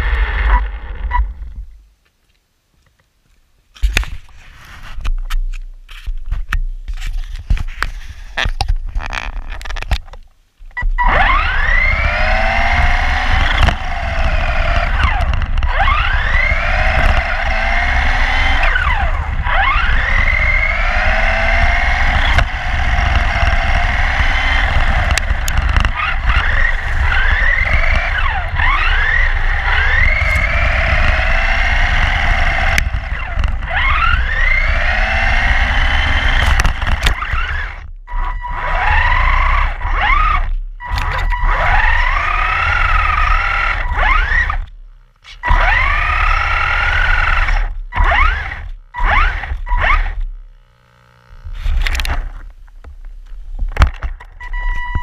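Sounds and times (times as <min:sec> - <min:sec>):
electric rc car motor whining: 0:00.0 - 0:01.6, 0:10.8 - 0:52.5
heavy wind rumble: 0:11.3 - 0:37.9.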